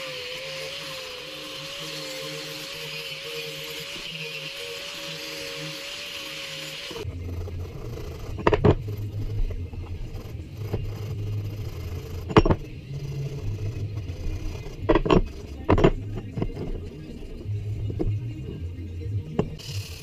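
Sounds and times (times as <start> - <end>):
abrasive scraping metal handle: 7.0 - 18.6
steady low hum: 7.0 - 20.0.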